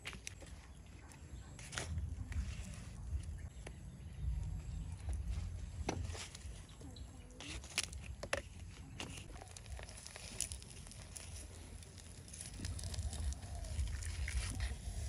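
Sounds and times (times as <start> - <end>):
faint low rumble: 0.8 - 7.4
leaf crackling on charcoal: 4.6 - 15.0
leaf rustling: 9.1 - 15.0.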